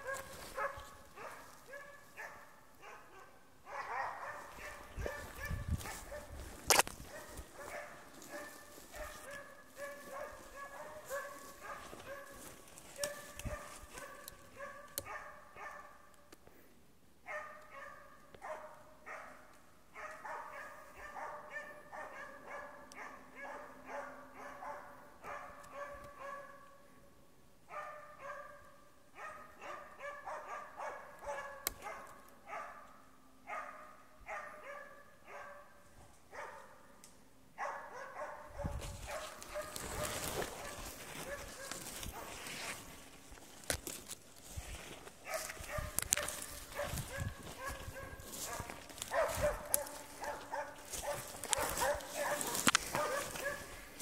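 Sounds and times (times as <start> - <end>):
dog barking in fast runs: 0.0 - 16.1, 17.3 - 26.8, 27.7 - 32.9, 33.5 - 36.9, 37.6 - 42.8, 45.2 - 54.0.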